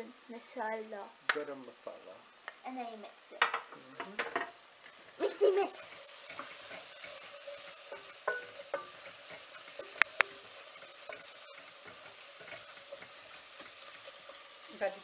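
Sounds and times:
vegetables sizzling in pans: 0:00.0 - 0:15.0
spatula stirring in pan: 0:03.4 - 0:15.0
sharp clicks: 0:10.0 - 0:10.3.

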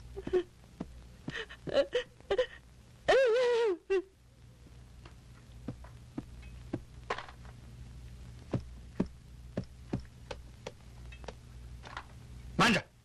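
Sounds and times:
steady low hum: 0:00.0 - 0:13.0
footsteps: 0:05.6 - 0:07.4.

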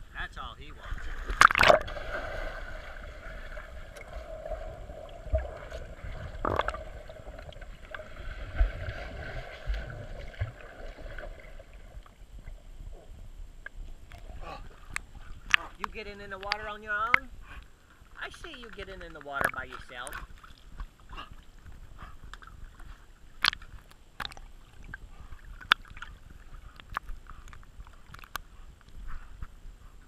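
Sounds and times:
muffled underwater churning and bubbles: 0:00.7 - 0:18.2
water splash: 0:00.8 - 0:12.2.

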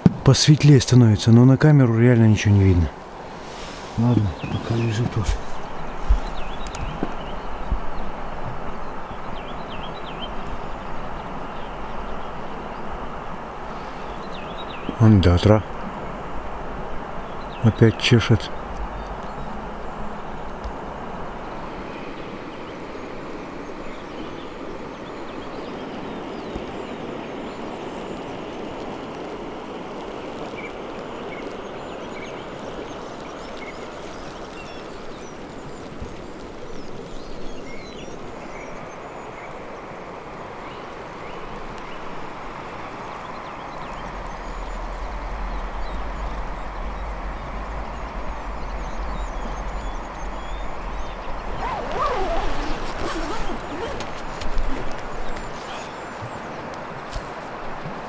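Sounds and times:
rushing outdoor noise: 0:00.0 - 0:58.0
faint high bird calls: 0:43.0 - 0:56.8
low rumble: 0:44.0 - 0:51.7.

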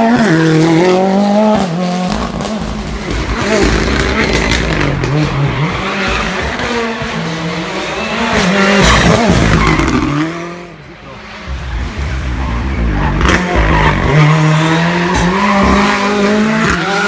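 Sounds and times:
rally car engine driven hard: 0:00.0 - 0:17.0.

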